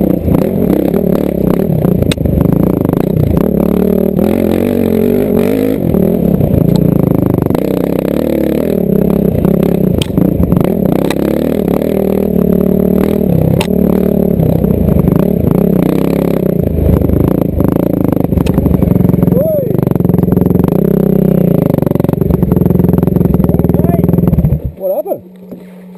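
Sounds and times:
dirt bike engine revving: 0.0 - 25.4
bike clicks and knocks: 10.0 - 10.2.

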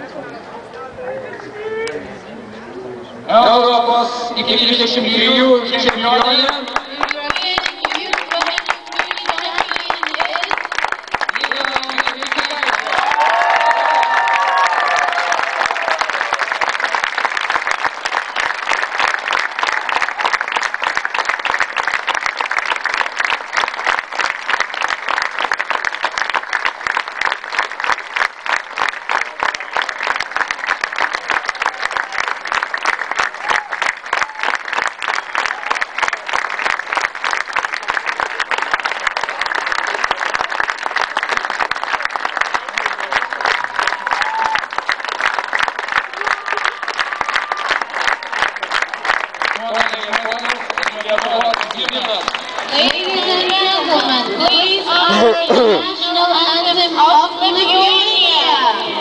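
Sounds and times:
stadium crowd applauding: 4.4 - 56.6.

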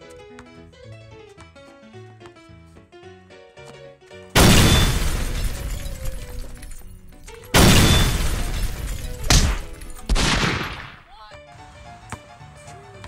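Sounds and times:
plucked-string background music: 5.0 - 13.0.

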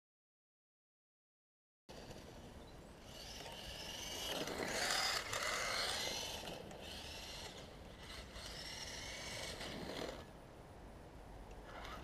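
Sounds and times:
electric motor whining: 3.0 - 10.3.

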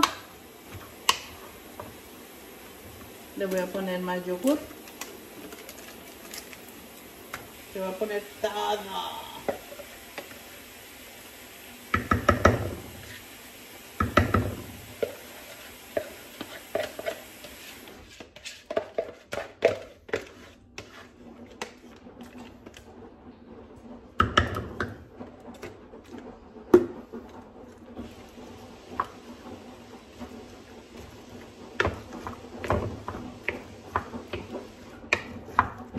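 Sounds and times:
spoon stirring: 15.0 - 22.8, 27.7 - 35.9.

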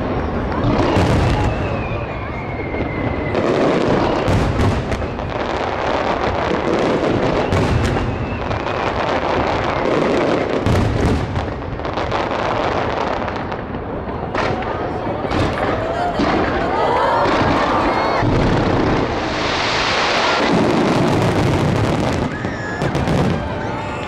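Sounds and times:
fireworks barrage booming and crackling: 0.0 - 24.0
sharp firework reports: 0.0 - 24.0.

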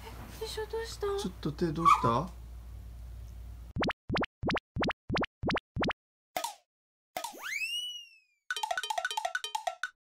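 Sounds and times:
cartoon bloop pops: 3.8 - 6.0.

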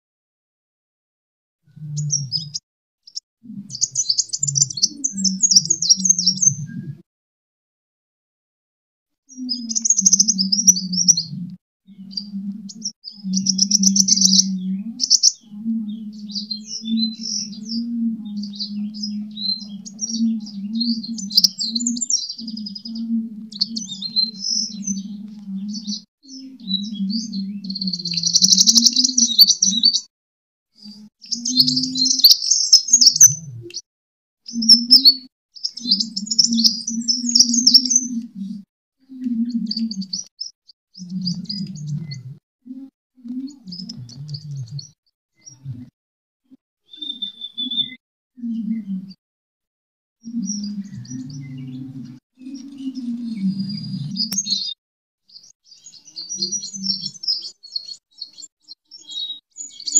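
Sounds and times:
bird chattering song: 2.0 - 6.6, 9.3 - 11.3, 12.0 - 30.1, 31.3 - 33.8, 34.5 - 38.2, 39.2 - 42.0, 46.9 - 48.7, 52.4 - 59.9.

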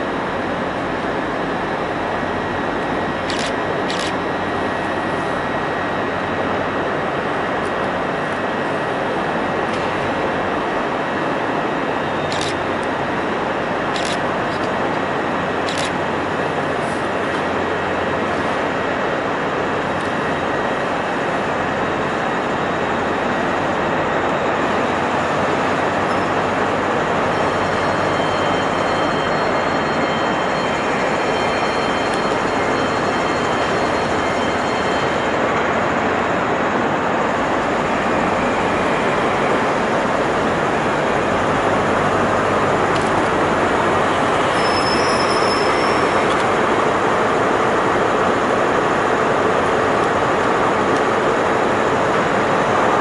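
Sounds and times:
train diesel engine drone: 0.0 - 53.0
faint high-pitched squeals: 44.3 - 46.6.

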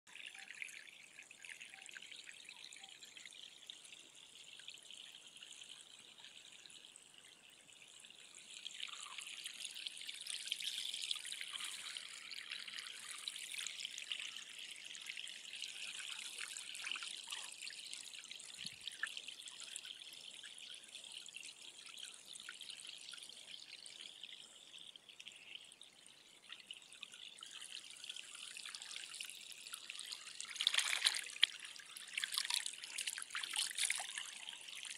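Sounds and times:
stream trickling through grass: 0.1 - 34.9
rush of water: 30.4 - 34.4.

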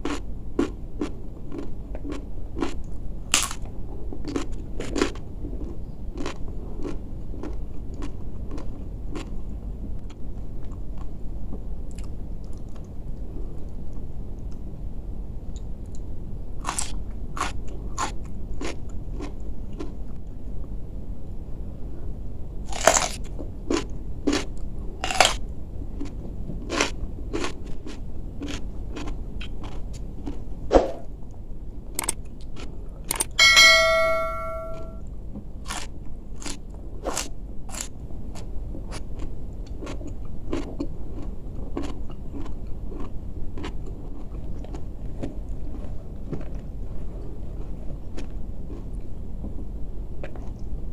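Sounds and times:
person chewing crunchy vegetables: 0.0 - 9.5, 11.9 - 12.9, 16.6 - 20.2, 22.7 - 30.6, 32.0 - 33.4, 35.6 - 49.2, 50.2 - 50.7
short multi-pitch tone: 33.4 - 35.0.

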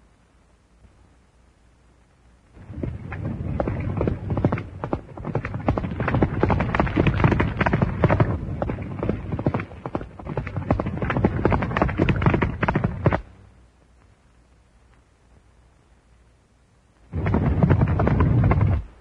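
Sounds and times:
horses galloping: 2.6 - 13.3, 17.1 - 19.0.

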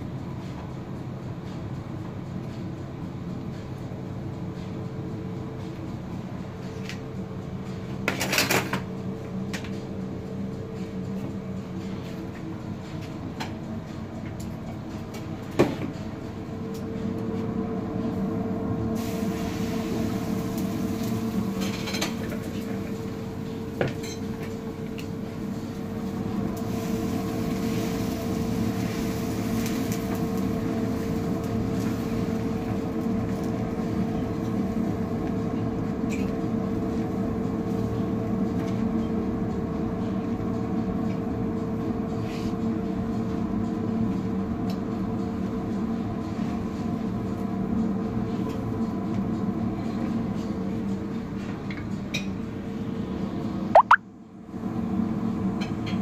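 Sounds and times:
gas burner roaring: 14.3 - 43.3.

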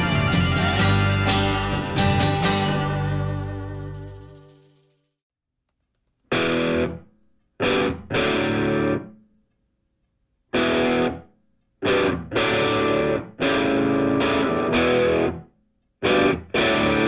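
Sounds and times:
distorted electric guitar chords: 0.0 - 4.2, 6.3 - 9.2, 10.5 - 17.0.

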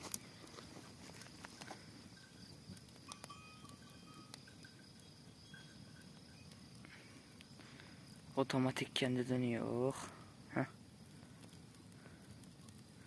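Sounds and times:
wood fire crackling: 0.0 - 13.0
faint high chirps: 2.0 - 8.2.

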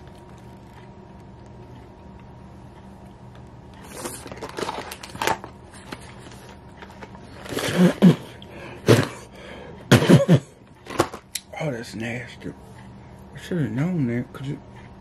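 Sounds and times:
chewing: 0.0 - 2.3
wrapper crinkling: 3.8 - 7.6.

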